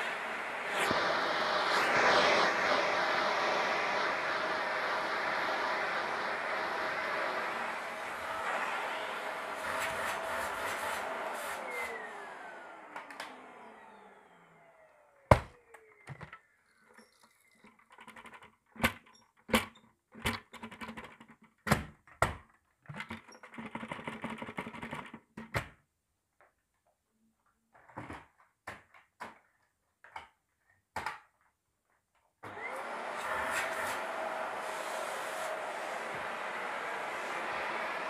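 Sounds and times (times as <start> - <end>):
vacuum cleaner motor winding down: 0.0 - 17.1, 32.4 - 38.0.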